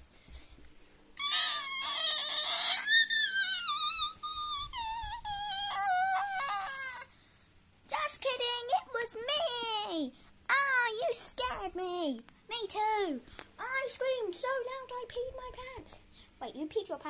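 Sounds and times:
child screaming: 1.2 - 7.1.

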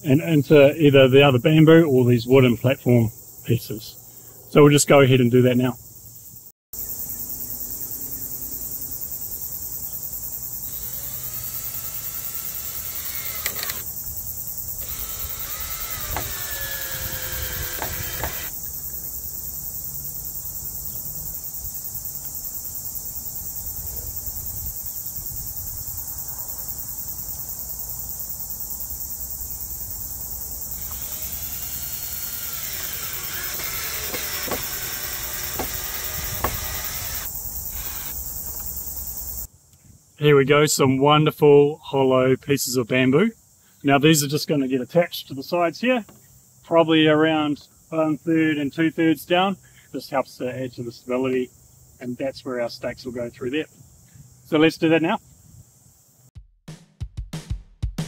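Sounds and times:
insect chorus: 0.0 - 56.3
cordless drill driving screws: 10.7 - 13.9, 14.8 - 18.5, 30.8 - 38.7.

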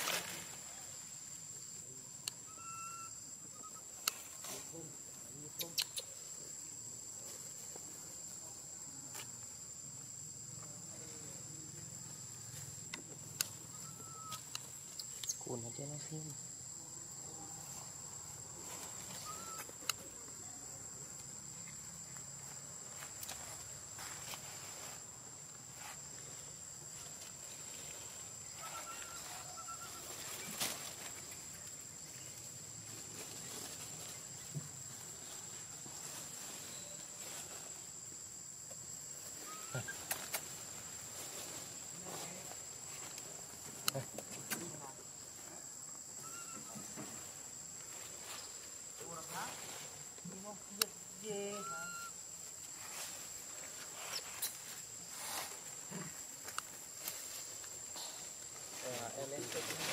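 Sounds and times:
insect chorus drone: 0.0 - 59.9
faint thin broken call: 13.8 - 15.2.

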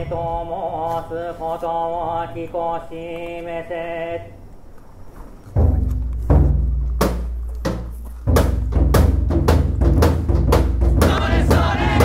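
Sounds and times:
booming festival drums: 5.6 - 12.0
people shouting: 11.1 - 12.0.

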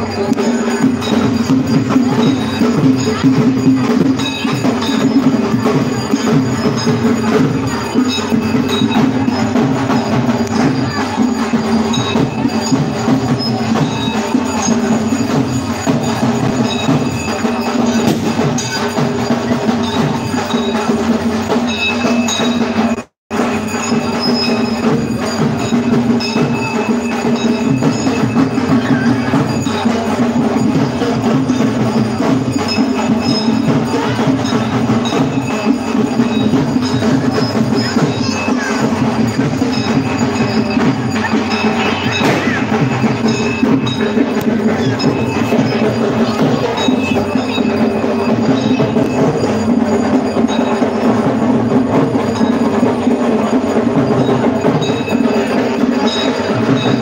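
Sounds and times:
drum strokes: 0.0 - 57.0
metal bell strikes: 0.0 - 57.0.

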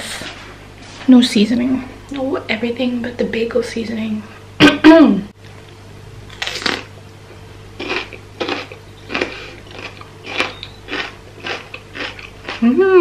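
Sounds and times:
biting into bell pepper: 6.3 - 6.9
crisp chewing crunches: 6.3 - 6.9, 7.8 - 12.8.

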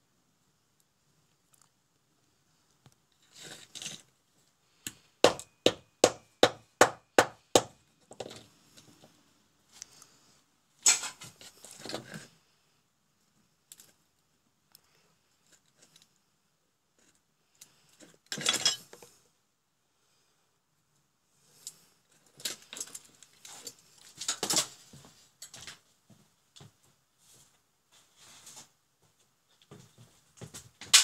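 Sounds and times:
parts and cable rustling and clattering: 2.7 - 5.2, 8.0 - 12.5, 13.4 - 16.2, 17.0 - 19.2, 21.5 - 31.0.

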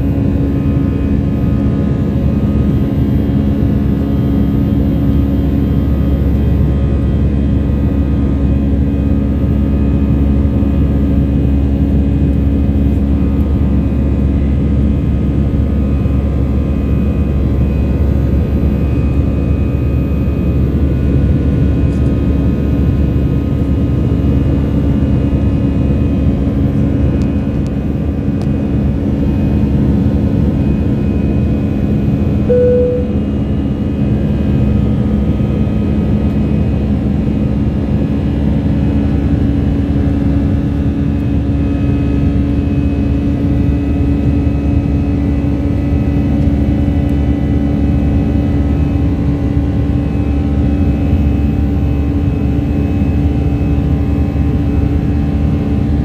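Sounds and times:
jet engines droning in cabin: 0.0 - 56.0
short cabin tone: 32.4 - 33.8.

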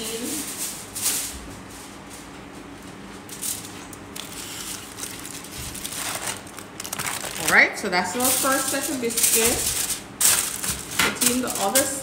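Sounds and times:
aluminium foil crinkling: 3.2 - 12.0.

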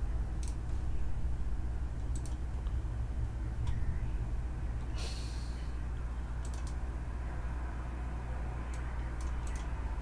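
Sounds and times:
steady low hum: 0.0 - 10.0
short breath: 4.9 - 5.8.

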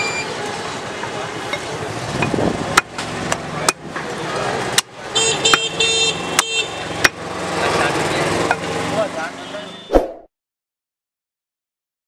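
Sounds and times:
street noise: 0.0 - 10.3
horn beeping: 5.2 - 7.0, 9.4 - 9.9.

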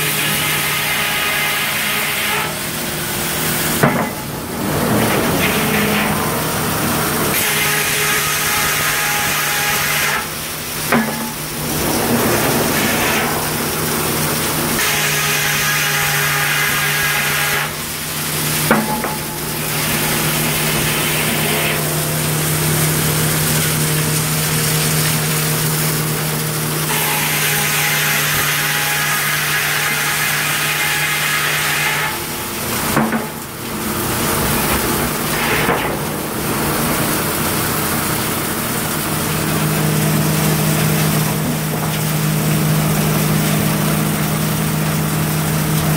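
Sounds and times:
circular saw cutting log: 0.0 - 45.9
sawmill machinery hum: 0.0 - 45.9
sharp knocks: 3.8 - 4.2.

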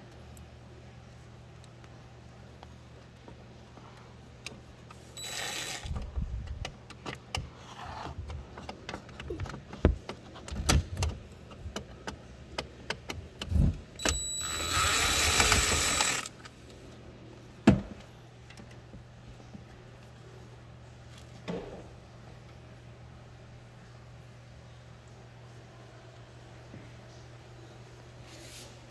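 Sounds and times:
cordless drill whining: 5.2 - 6.0, 14.0 - 16.3.

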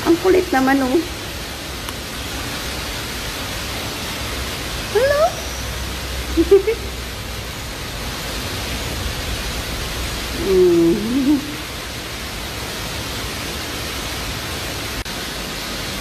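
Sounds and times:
steady background hiss: 0.0 - 16.0
wavering pitched call: 4.9 - 7.0.

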